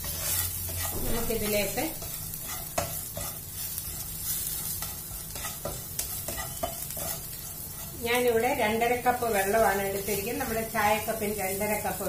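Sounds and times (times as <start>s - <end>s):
spatula scraping and tapping pan: 0.0s - 8.4s
aromatics sizzling in a pan: 0.0s - 12.0s.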